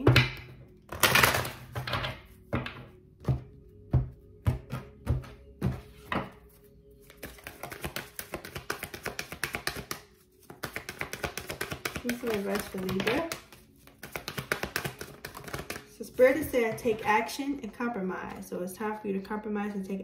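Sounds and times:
cards swishing slaps: 7.2s - 15.8s.

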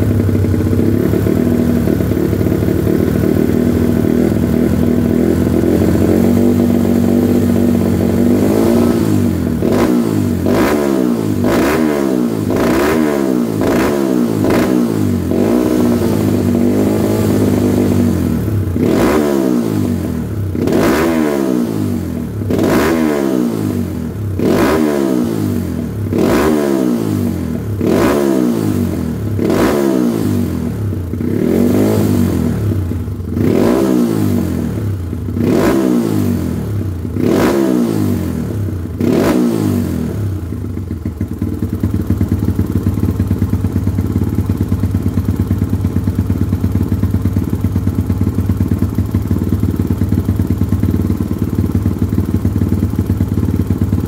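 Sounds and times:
dirt bike engine idling: 0.0s - 54.0s
dirt bike engine revving: 2.9s - 40.4s.

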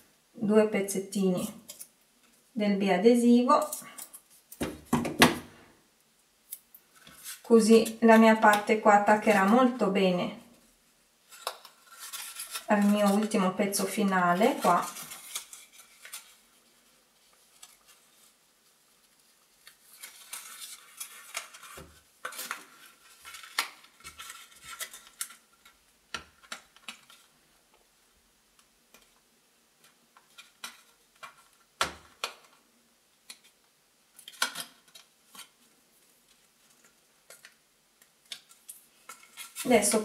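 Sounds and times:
wrapping paper rustling: 6.8s - 10.0s, 11.2s - 27.4s, 34.2s - 40.0s.

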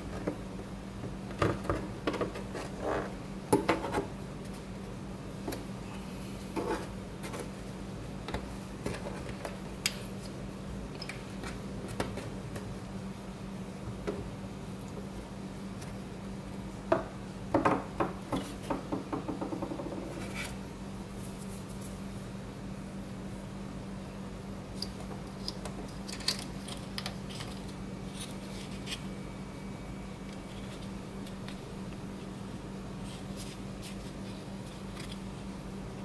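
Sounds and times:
steady low hum: 0.0s - 36.0s.

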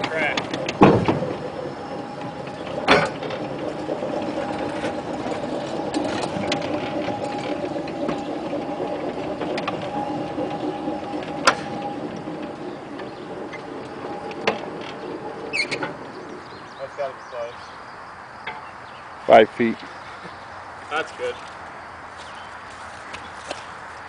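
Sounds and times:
wheels and couplings clicking: 0.0s - 19.0s.

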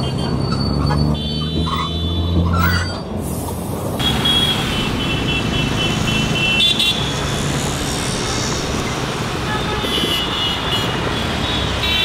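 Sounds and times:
street traffic noise: 0.0s - 12.0s.

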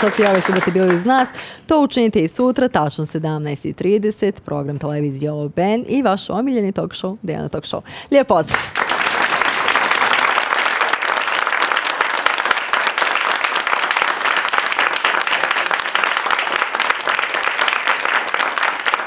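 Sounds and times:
audience applauding: 0.0s - 1.4s, 8.5s - 19.0s.

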